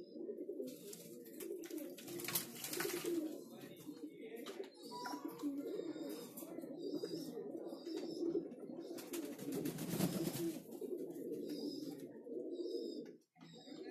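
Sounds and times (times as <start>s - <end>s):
pigeons cooing: 0.0s - 13.9s
wings flapping: 0.8s - 3.3s, 9.0s - 10.6s.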